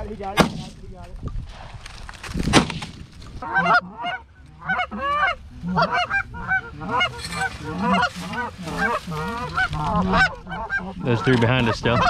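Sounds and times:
geese honking: 3.4 - 12.0.

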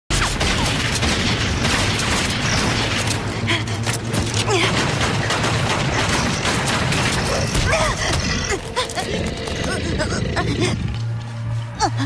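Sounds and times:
gunshots: 0.1 - 3.3, 4.6 - 8.0.

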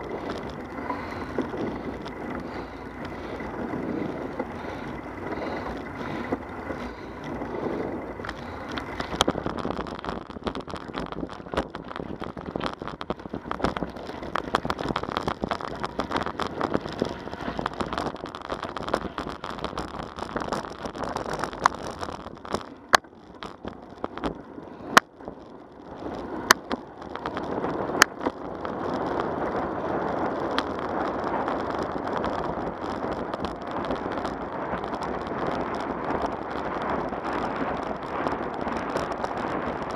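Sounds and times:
bicycle knocks from bumps: 0.0 - 25.2
bicycle rattling over gravel: 0.0 - 39.9
bicycle rolling on pavement: 0.0 - 39.9.

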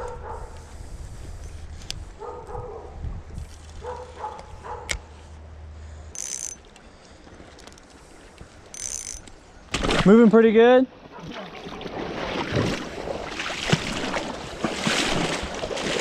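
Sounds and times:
dog barking: 0.0 - 0.6, 2.2 - 3.0, 3.8 - 4.9.

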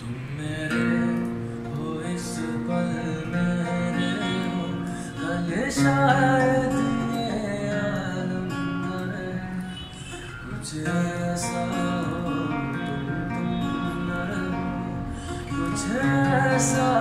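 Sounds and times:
acoustic guitar strumming chords: 0.0 - 17.0
man singing a ballad: 0.0 - 17.0.

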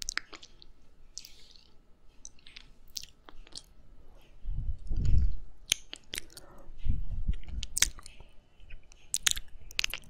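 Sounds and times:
low muffled rumbles: 4.0 - 5.6, 6.3 - 8.9
wet licking and lip smacks: 7.3 - 10.0.

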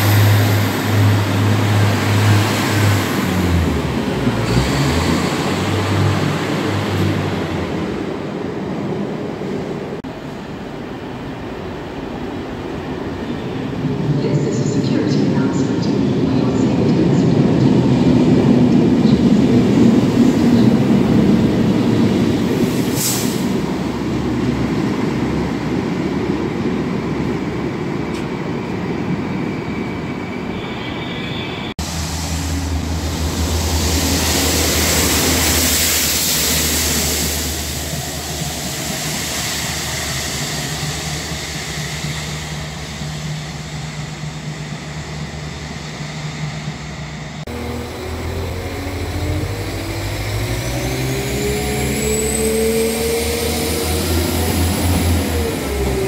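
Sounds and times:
freight train rumbling past: 0.0 - 56.0
rail vehicle engine hum: 0.0 - 56.0
loud hissing rush: 31.8 - 52.1.

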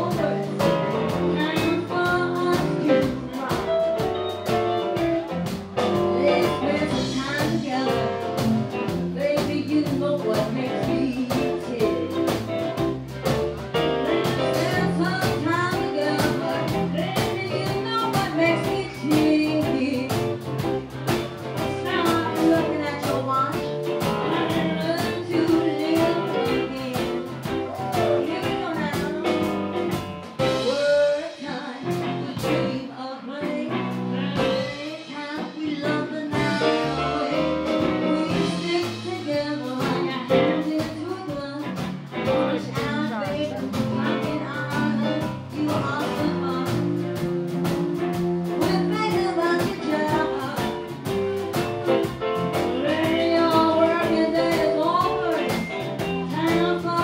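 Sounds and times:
live blues band playing: 0.0 - 57.0.

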